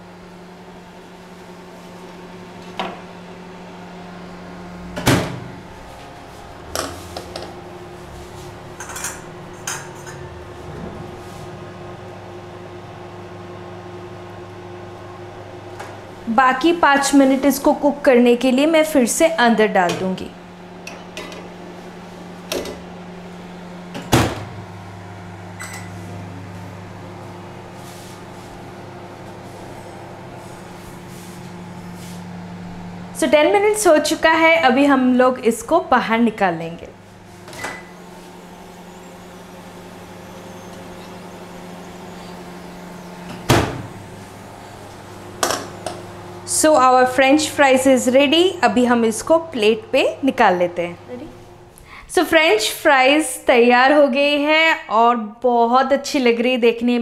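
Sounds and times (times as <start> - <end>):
microwave oven humming: 0.0 - 57.0
microwave door shutting: 4.9 - 5.6, 23.9 - 24.7, 37.4 - 46.1.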